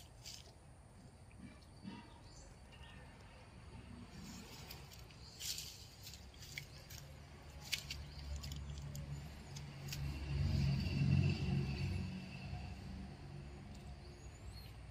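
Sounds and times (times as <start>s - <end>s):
engine passing by: 3.7s - 14.9s.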